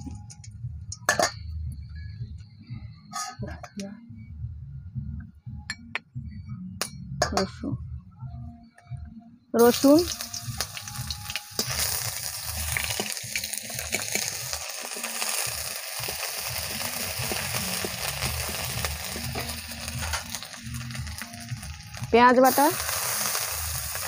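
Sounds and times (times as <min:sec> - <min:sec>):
garlic sizzling in hot oil: 0:09.6 - 0:24.0.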